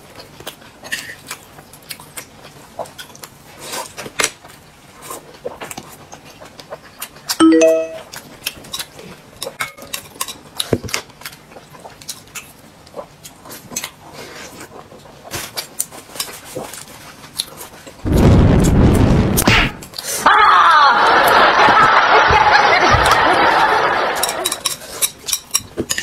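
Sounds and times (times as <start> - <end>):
chopsticks and dishes clicking: 24.2 - 26.0.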